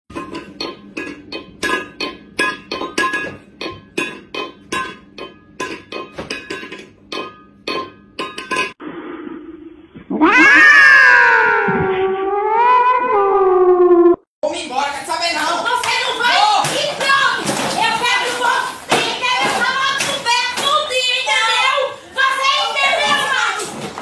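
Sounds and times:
cat yowling: 10.1 - 14.2.

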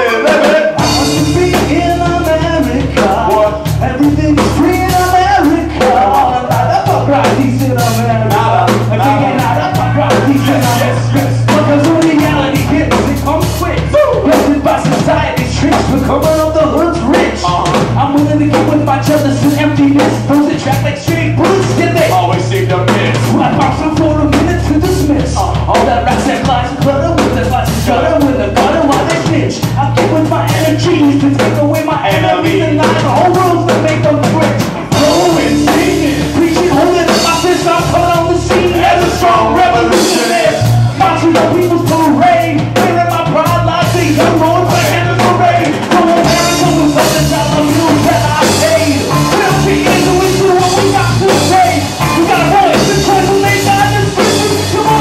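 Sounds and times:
drum kit beat: 0.0 - 55.0
electric bass: 0.0 - 55.0
electric guitar: 43.8 - 55.0.

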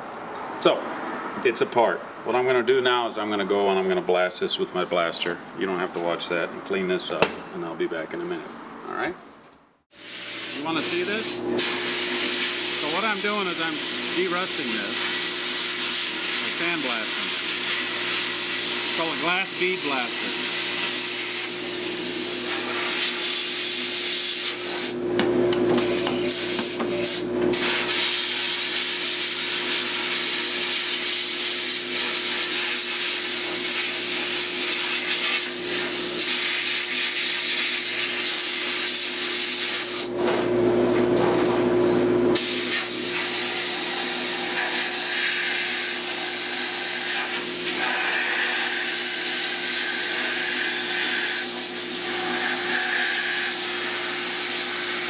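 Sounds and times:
hiss of blast nozzle: 9.9 - 12.6, 42.4 - 43.4.

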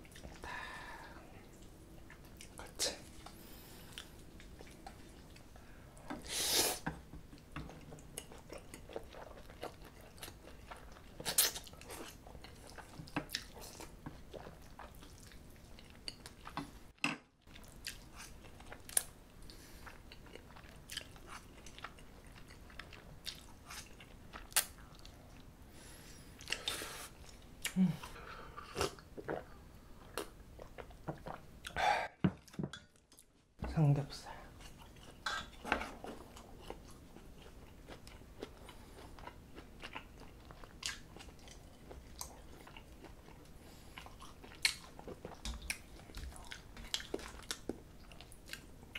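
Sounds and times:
wet chewing and smacking: 6.9 - 16.8, 17.5 - 25.5, 34.6 - 48.9.

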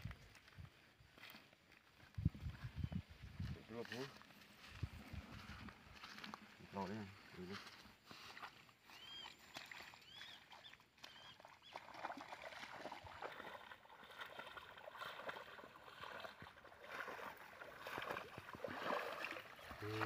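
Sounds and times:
footsteps wading through water: 0.0 - 20.0
water sloshing and splashing: 8.1 - 20.0.

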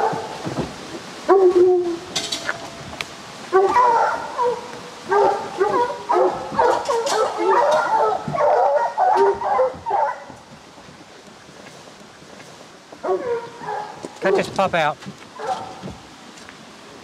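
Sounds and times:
hounds baying: 3.5 - 10.5, 13.0 - 14.6, 15.4 - 15.8.

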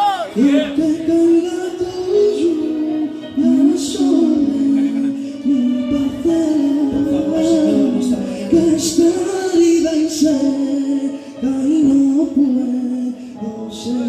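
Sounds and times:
men singing into microphones: 0.0 - 14.0.

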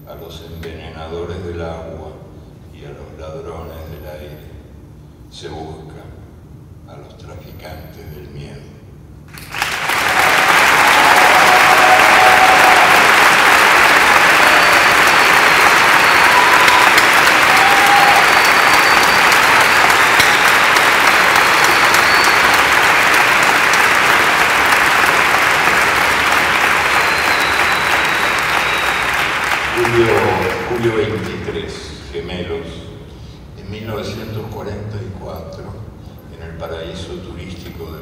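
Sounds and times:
large audience applauding: 9.3 - 31.6.

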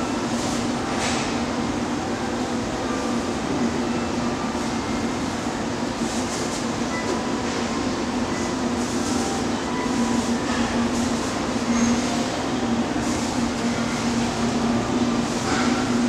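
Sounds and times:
standing train humming: 0.0 - 16.0.

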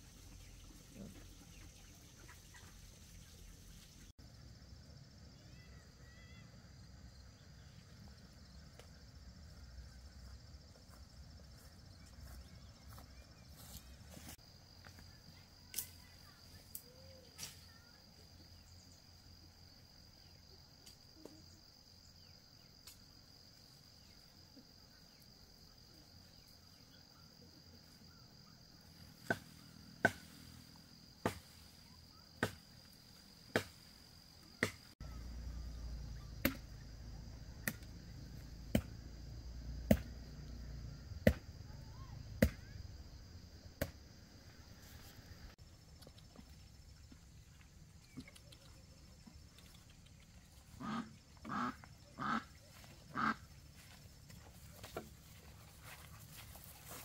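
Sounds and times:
wood being chopped: 31.2 - 31.6, 32.4 - 32.6, 33.5 - 33.8, 39.9 - 40.1, 41.2 - 41.4, 42.4 - 42.6.

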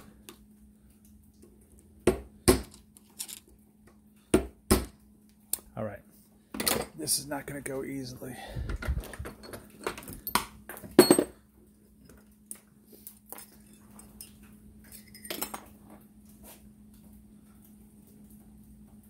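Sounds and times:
faint steady hum: 0.0 - 19.0
metal clanks and clinks: 13.4 - 15.6.

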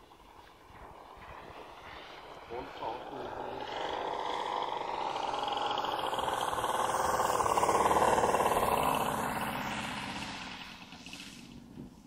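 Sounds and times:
model plane engine passing: 0.0 - 12.0.

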